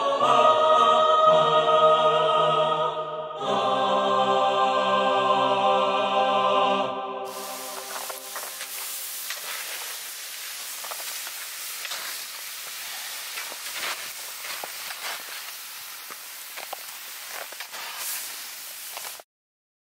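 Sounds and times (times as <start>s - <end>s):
crackles and clicks: 7.3s - 19.2s
steady hiss: 7.3s - 19.2s.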